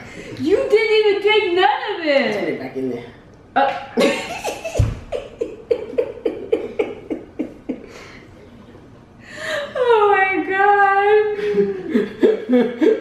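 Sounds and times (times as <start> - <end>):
woman laughing hard: 4.0 - 8.1.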